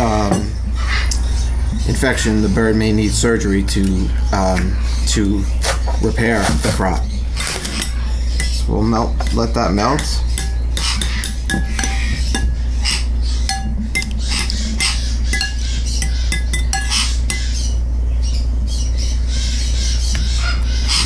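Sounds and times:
spoon stirring in glass bowl: 0:07.5 - 0:08.6, 0:10.0 - 0:12.7, 0:13.5 - 0:17.6.

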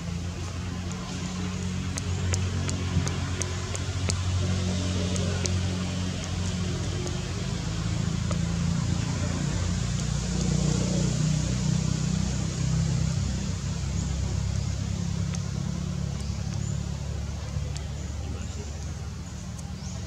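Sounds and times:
low motor hum: 0:00.0 - 0:20.0.

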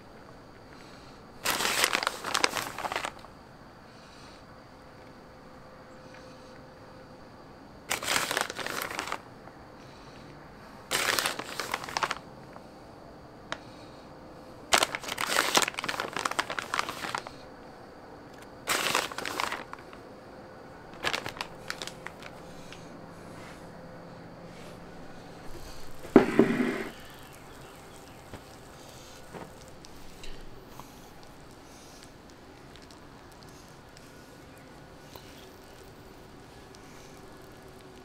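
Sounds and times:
plastic bag crinkling: 0:01.4 - 0:03.3, 0:07.9 - 0:09.2, 0:10.9 - 0:12.2, 0:14.7 - 0:17.4, 0:18.6 - 0:20.0, 0:20.9 - 0:22.7, 0:25.4 - 0:38.0.

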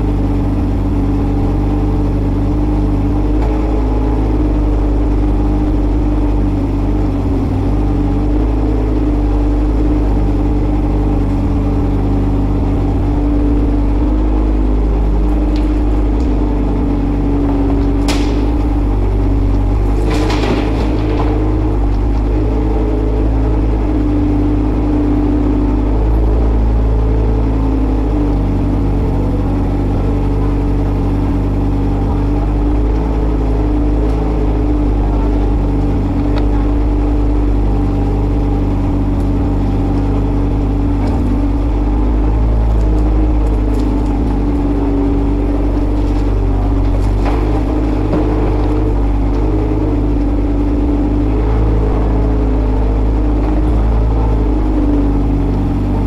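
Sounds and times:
excavator diesel engine running: 0:00.0 - 0:56.0
short rattle: 0:17.5 - 0:23.8.

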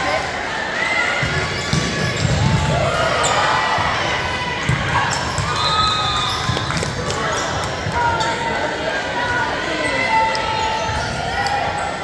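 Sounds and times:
sneakers squeaking on court: 0:01.2 - 0:03.9.

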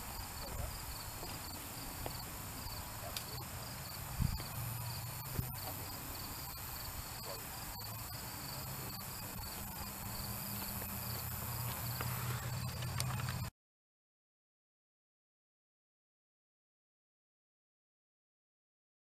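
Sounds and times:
crickets chirping: 0:00.0 - 0:13.5.

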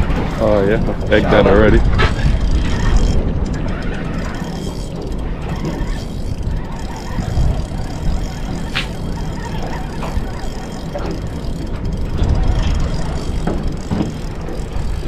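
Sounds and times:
fishing reel whirring: 0:00.0 - 0:15.0
sharp click: 0:08.7 - 0:09.0.

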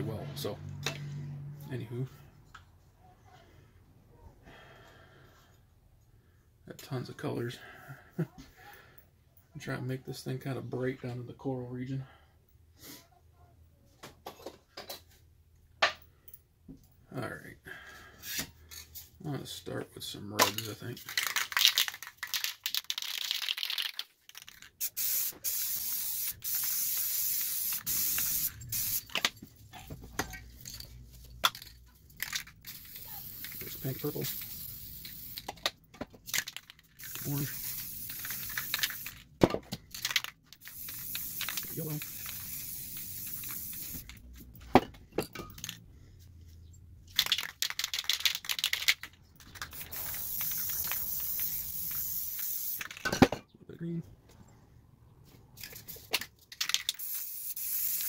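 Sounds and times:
cans clinking and rattling: 0:20.4 - 0:29.4, 0:30.0 - 0:44.2, 0:44.8 - 0:45.8, 0:47.1 - 0:53.4, 0:55.6 - 0:58.0
spray paint can hissing: 0:24.3 - 0:29.2, 0:32.2 - 0:35.5, 0:37.0 - 0:39.2, 0:40.1 - 0:44.2, 0:49.6 - 0:52.9, 0:56.7 - 0:58.0.

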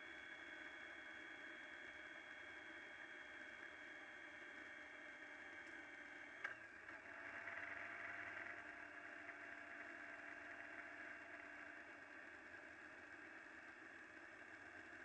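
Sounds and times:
muffled motorcycle engine: 0:06.4 - 0:15.0.

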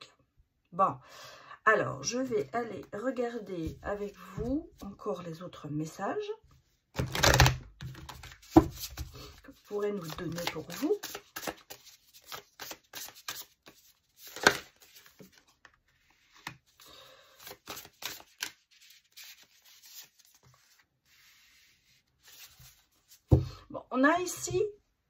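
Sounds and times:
cards being shuffled: 0:07.0 - 0:23.3.

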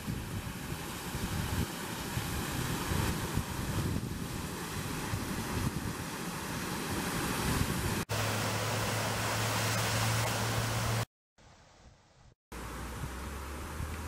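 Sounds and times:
wind on microphone: 0:00.0 - 0:08.1
waterfall rushing: 0:06.2 - 0:11.1.

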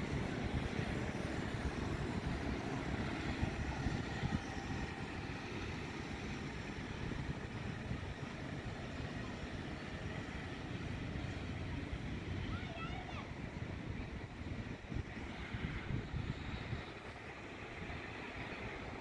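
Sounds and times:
distant airliner engines rumbling: 0:00.0 - 0:19.0
road traffic: 0:00.0 - 0:19.0
wind on microphone: 0:13.7 - 0:19.0.

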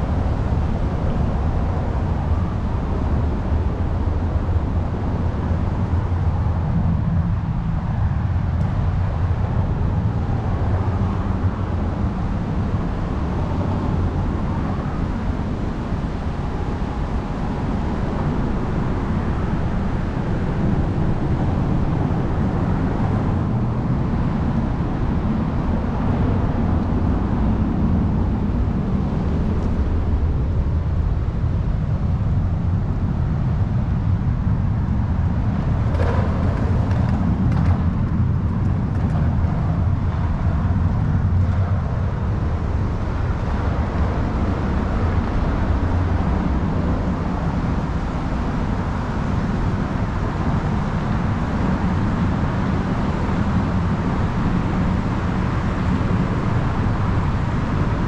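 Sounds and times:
low rumble of road traffic: 0:00.0 - 0:58.0.

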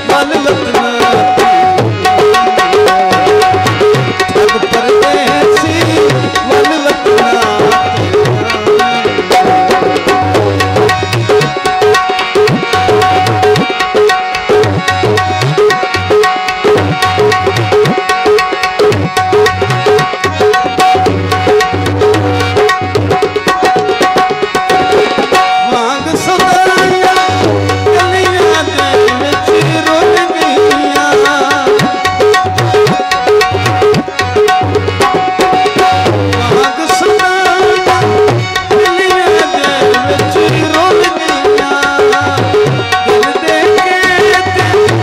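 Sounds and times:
hand drums: 0:00.0 - 0:45.0.

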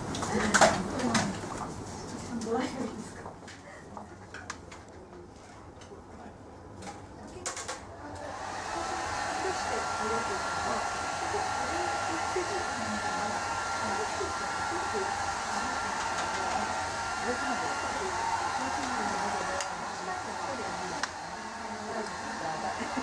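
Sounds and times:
hair dryer blowing: 0:08.2 - 0:23.0.

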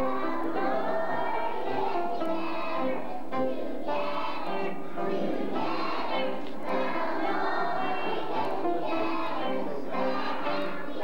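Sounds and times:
children's choir singing: 0:00.0 - 0:11.0.

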